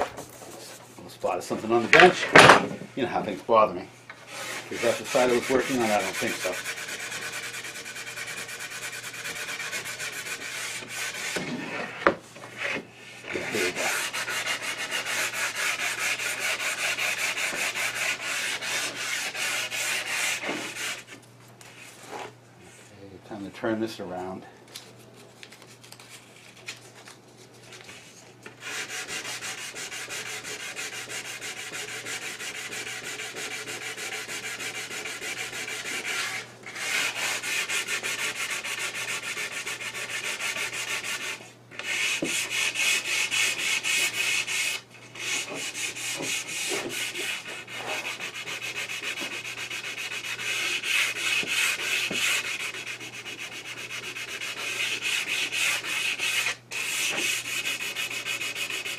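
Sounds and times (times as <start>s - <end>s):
sandpaper rubbing wood: 4.3s - 11.9s, 12.6s - 21.1s, 28.6s - 58.9s.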